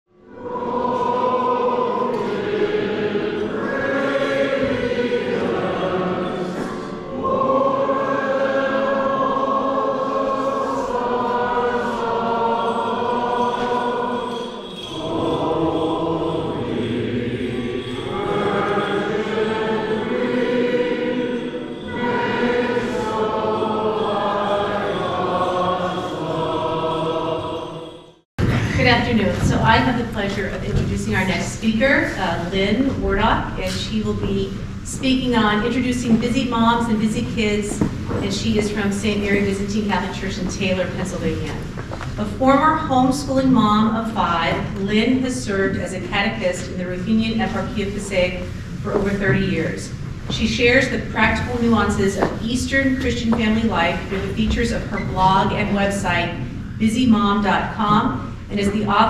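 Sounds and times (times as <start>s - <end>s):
choir singing church chant: 0.1s - 41.6s, 43.0s - 59.0s.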